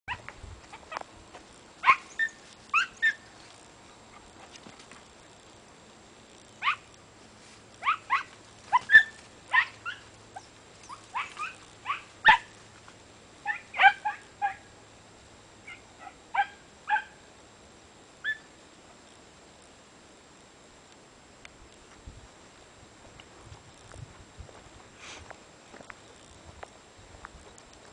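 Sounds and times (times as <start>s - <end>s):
dog yelping: 1.8s - 3.2s, 6.6s - 6.8s, 7.8s - 12.5s, 13.4s - 14.6s.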